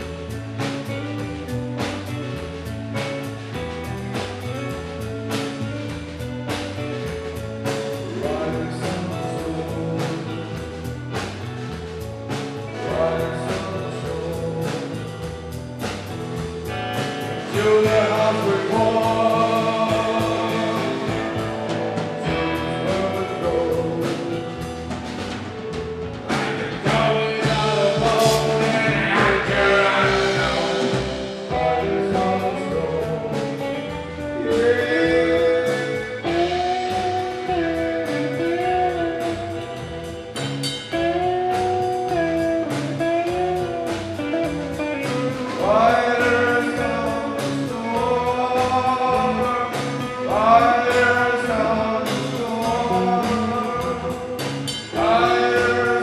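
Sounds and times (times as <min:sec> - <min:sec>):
drums: 0:00.0 - 0:56.0
electric guitar: 0:00.0 - 0:56.0
man singing: 0:07.6 - 0:11.0, 0:12.6 - 0:15.7, 0:17.3 - 0:25.0, 0:26.2 - 0:40.3, 0:41.2 - 0:56.0.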